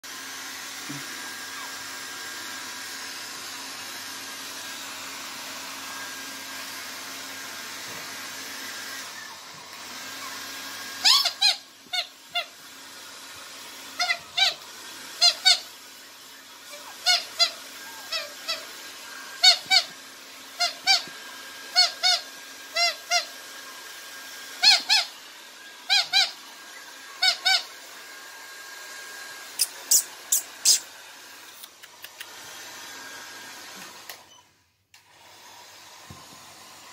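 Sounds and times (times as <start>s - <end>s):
puppies yapping: 10.0s - 12.5s.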